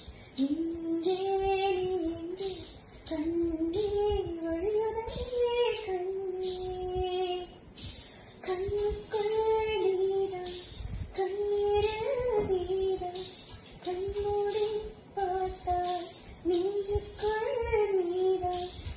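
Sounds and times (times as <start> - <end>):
woman singing a lullaby: 0.0 - 7.7, 8.4 - 18.9.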